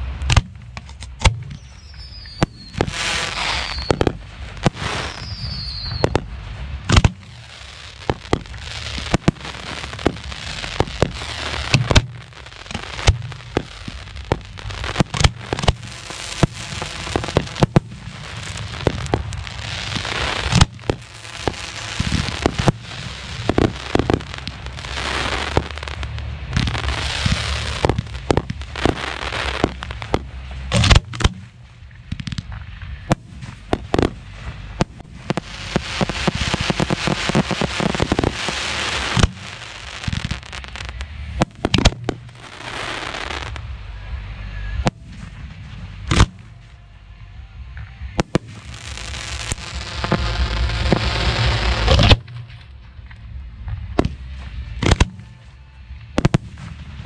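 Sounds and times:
firework crackle and hiss: 0:00.0 - 0:57.0
firework shells bursting: 0:06.9 - 0:25.9.

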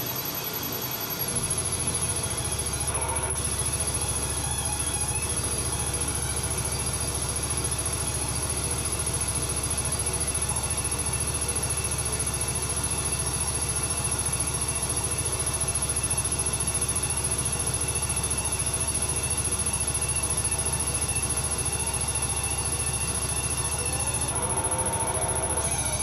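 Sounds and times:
electronic noise drone: 0:00.0 - 0:26.0
thin high whine: 0:17.9 - 0:26.0.

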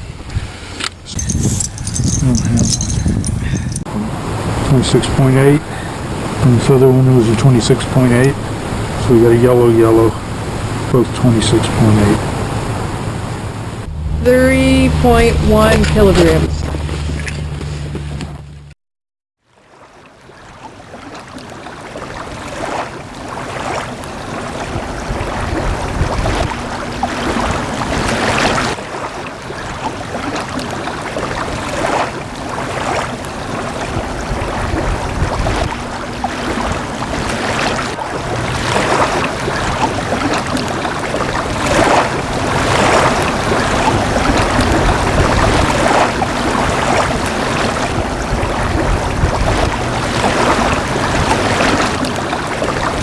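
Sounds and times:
wind on microphone: 0:00.0 - 0:04.8, 0:23.4 - 0:28.8, 0:31.3 - 0:53.0
waves lapping on rocky shore: 0:00.0 - 0:18.1, 0:19.6 - 0:53.0.

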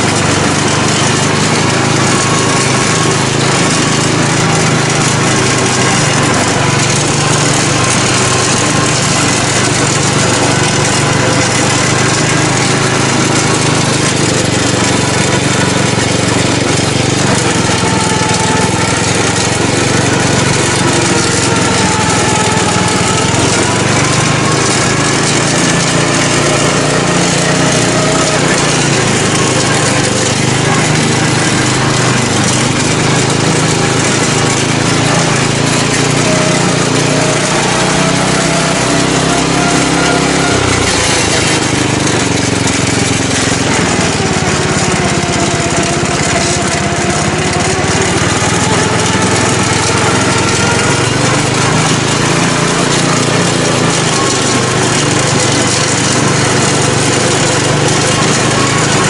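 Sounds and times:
mower engine running: 0:00.0 - 0:59.0.

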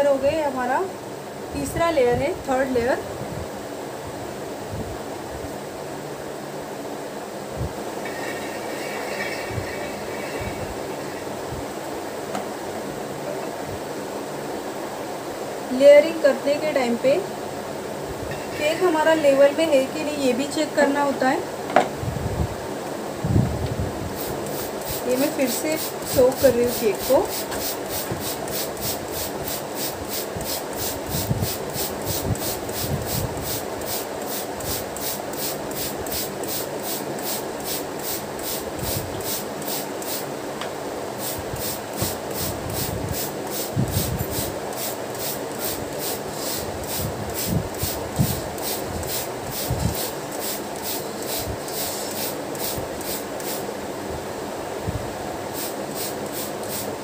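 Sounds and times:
spray bottle hissing: 0:24.2 - 0:40.3, 0:41.2 - 0:53.7, 0:55.5 - 0:57.0.

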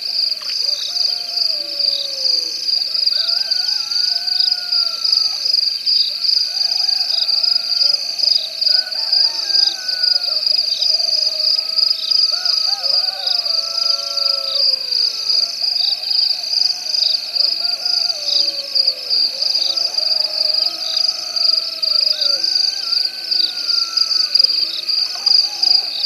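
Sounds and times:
wavering gliding animal calls: 0:06.3 - 0:26.0.

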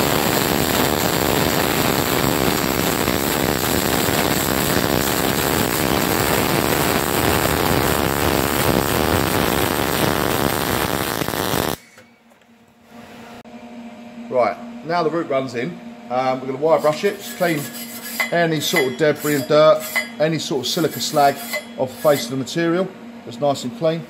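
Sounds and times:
welding arc crackling: 0:00.0 - 0:11.9.

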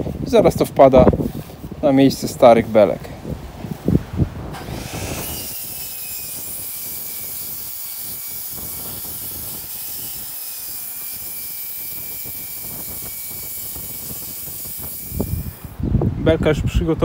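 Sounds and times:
mitre saw cutting wood: 0:04.5 - 0:15.8.

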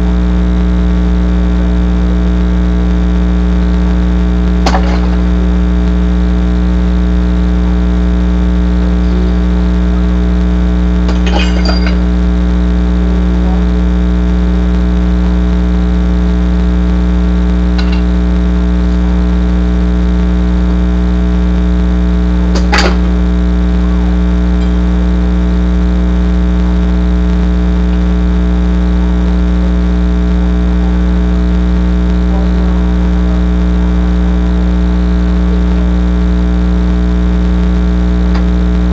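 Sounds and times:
low electrical hum: 0:00.0 - 0:38.9
wooden boards breaking: 0:04.6 - 0:05.6, 0:11.1 - 0:12.1, 0:22.6 - 0:23.2.

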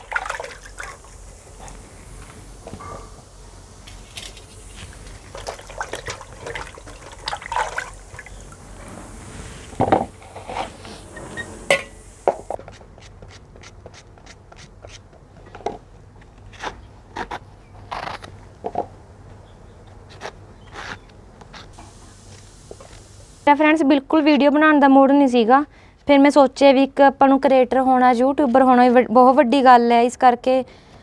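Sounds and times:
water splashing in a steel bucket: 0:00.0 - 0:01.2, 0:05.0 - 0:08.7
steel vessels knocking and clinking: 0:11.6 - 0:12.5.

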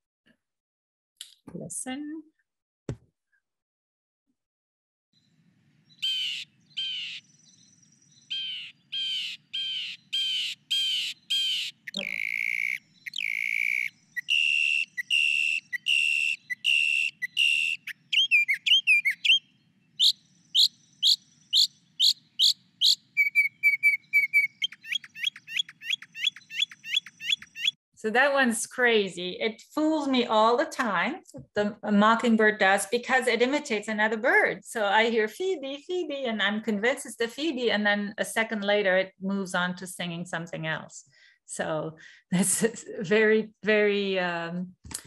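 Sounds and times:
mockingbird song: 0:05.2 - 0:27.8.

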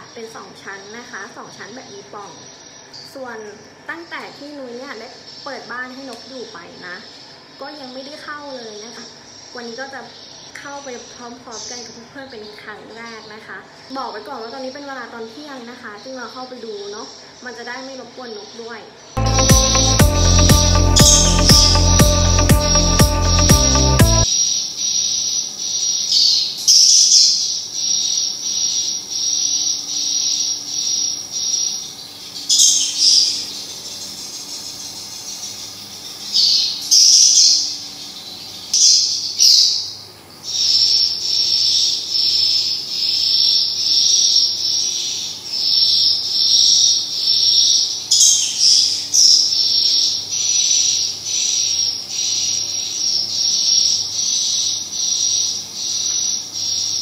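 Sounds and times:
bird twittering bursts: 0:19.2 - 0:27.2.

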